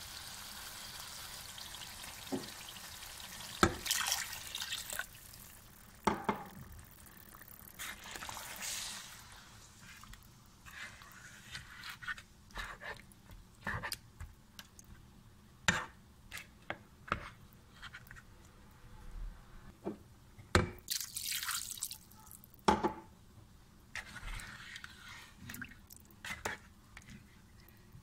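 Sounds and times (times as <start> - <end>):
curry bubbling in a pot: 0.0 - 11.4.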